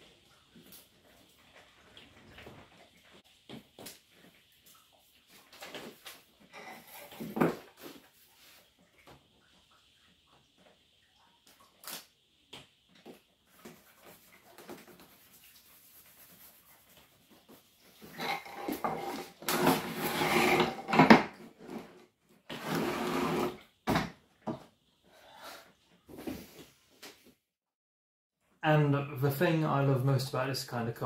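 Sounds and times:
wood sliding on workbench: 18.2s - 23.6s.

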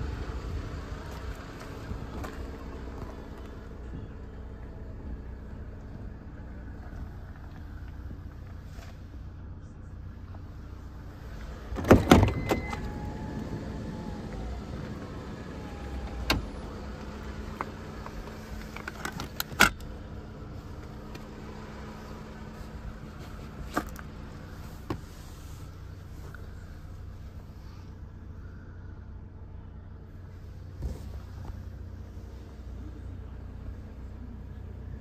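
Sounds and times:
steady low hum: 0.0s - 35.0s
car sliding door clunks: 11.5s - 16.6s.

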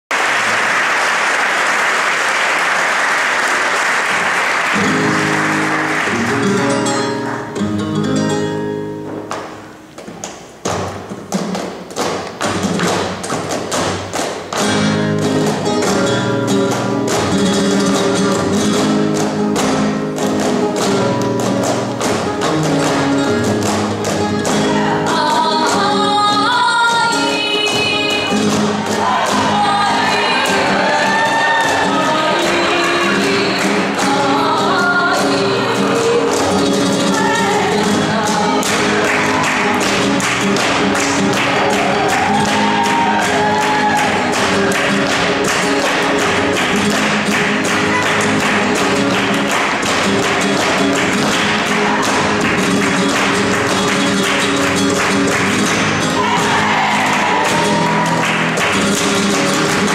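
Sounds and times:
flamenco guitar: 2.4s - 59.9s
percussive taps: 9.1s - 25.8s, 38.6s - 56.7s
person singing: 24.4s - 39.8s.

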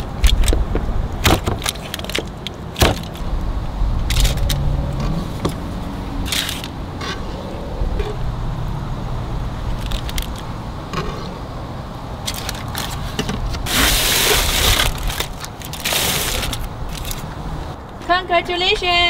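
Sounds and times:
low rumble: 3.5s - 9.8s
aluminium foil crinkling: 12.2s - 17.3s.

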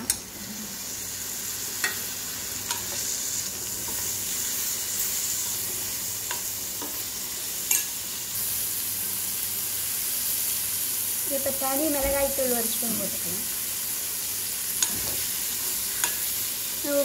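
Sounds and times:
fish sizzling in hot oil: 0.1s - 17.0s
metal spoon clinking on pan: 7.7s - 7.9s.

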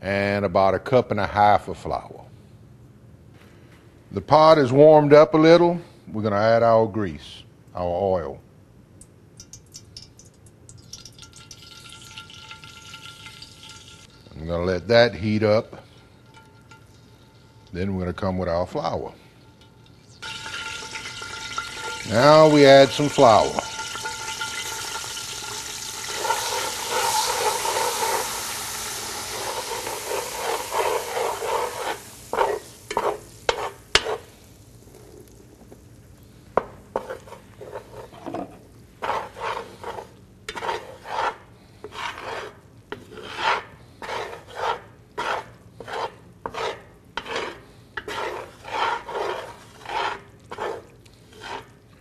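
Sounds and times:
flour and oil sizzling in a pot: 9.0s - 52.0s
metal spoon scraping a pot: 15.4s - 17.8s, 18.8s - 34.3s, 36.9s - 51.8s.

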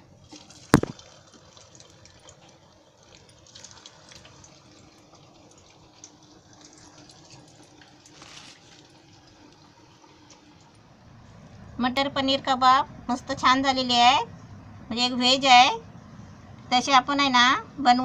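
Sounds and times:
food deep-frying in hot oil: 0.0s - 11.7s
small oil crackles: 0.2s - 10.8s.

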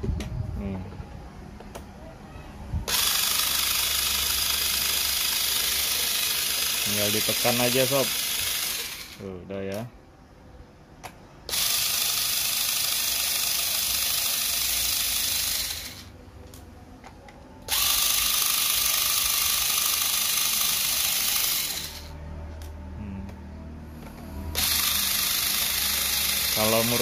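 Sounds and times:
electric screwdriver running: 2.9s - 9.2s, 11.5s - 16.1s, 17.7s - 22.1s, 24.6s - 27.0s.

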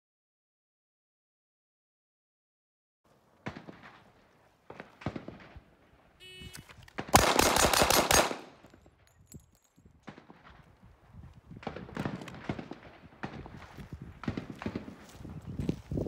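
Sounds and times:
pistol shots: 3.4s - 8.8s, 11.6s - 15.2s.

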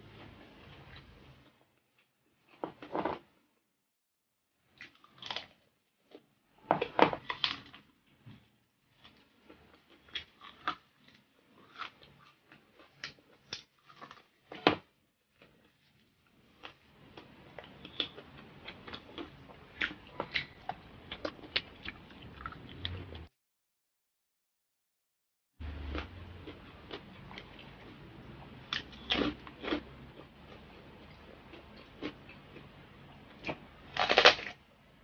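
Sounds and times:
chewing crispy fried pork: 4.7s - 6.3s, 7.0s - 23.3s, 25.6s - 34.6s.

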